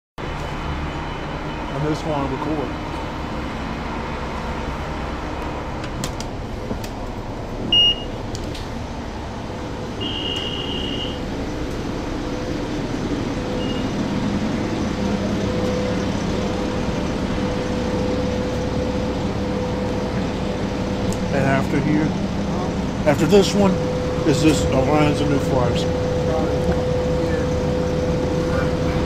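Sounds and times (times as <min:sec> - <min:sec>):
bus diesel engine running: 0:00.2 - 0:29.0
high beeps: 0:07.7 - 0:08.1, 0:13.6 - 0:13.9.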